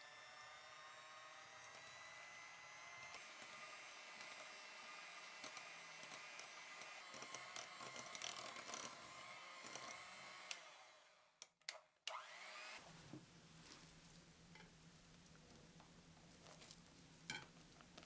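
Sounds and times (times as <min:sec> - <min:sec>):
electric hand mixer whipping: 0:00.0 - 0:11.3, 0:12.1 - 0:12.9.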